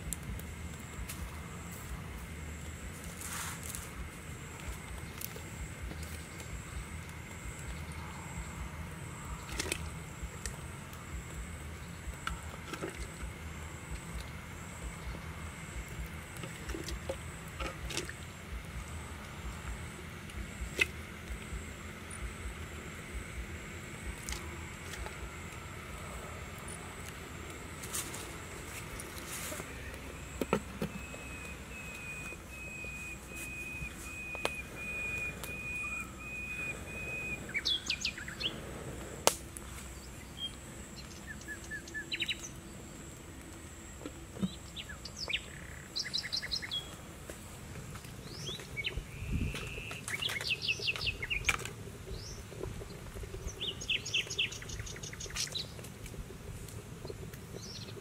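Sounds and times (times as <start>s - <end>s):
low rumble: 0.0s - 41.8s
pulsing high-pitched drone: 0.0s - 44.4s
high whistle-like call: 29.5s - 38.0s.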